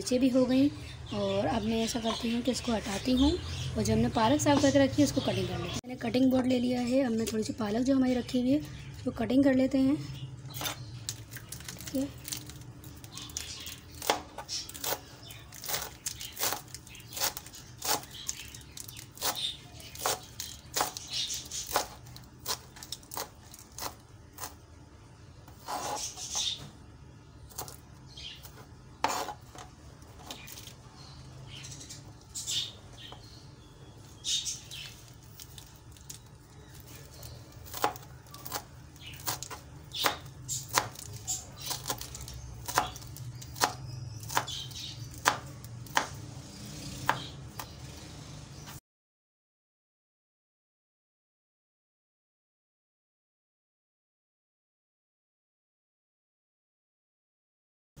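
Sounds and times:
knife chopping on cutting board: 29.0 - 29.6, 39.3 - 44.6, 45.2 - 47.8.

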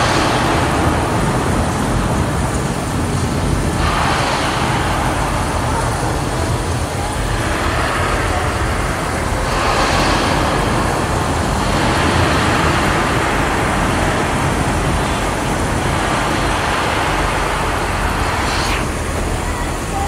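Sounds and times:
heavy rain pouring onto street: 0.0 - 20.0.

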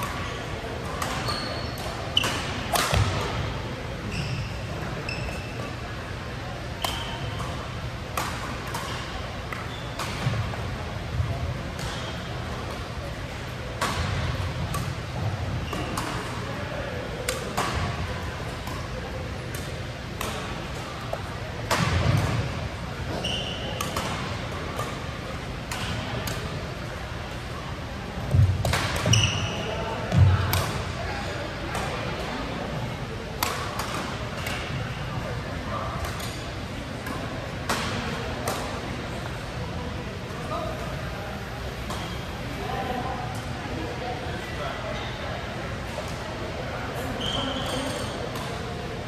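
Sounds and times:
shoes squeaking on court floor: 0.0 - 3.4, 4.0 - 5.8, 6.7 - 7.7, 8.5 - 10.5, 22.3 - 25.1, 28.3 - 30.3, 47.0 - 48.5
court shoes squeaking: 0.0 - 39.3, 41.6 - 42.5, 46.9 - 48.8
racket hitting shuttlecock: 1.0 - 3.4, 6.8 - 10.4, 19.5 - 20.5, 23.1 - 25.0, 28.4 - 29.3, 33.4 - 34.8.

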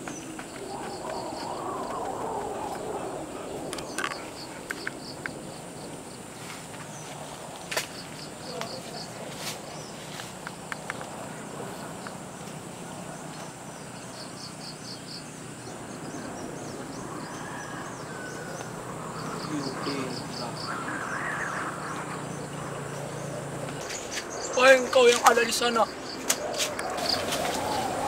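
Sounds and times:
faint voices: 0.0 - 5.0, 19.1 - 23.9
insects chirping: 0.0 - 28.0.

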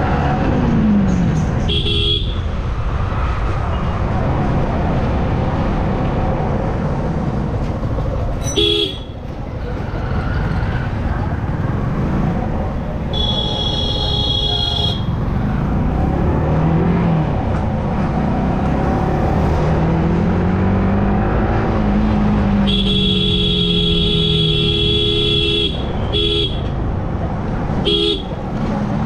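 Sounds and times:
vehicle horn honking: 1.7 - 2.4, 8.5 - 9.1, 13.1 - 15.1, 22.7 - 26.7, 27.8 - 28.3.

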